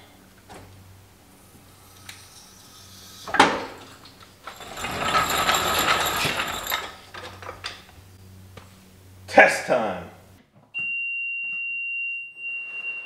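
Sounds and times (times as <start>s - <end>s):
jack rattling on concrete: 2.5s - 7.9s.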